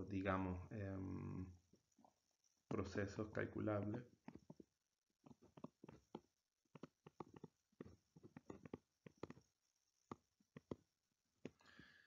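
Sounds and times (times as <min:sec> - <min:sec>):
stylus tapping on tablet: 0:03.7 - 0:11.9.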